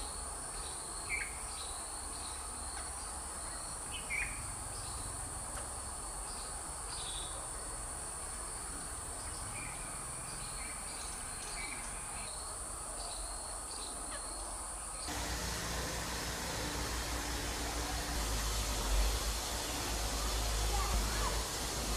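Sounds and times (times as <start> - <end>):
insects droning: 0.0 - 21.9
low rumble with hiss: 15.0 - 21.9.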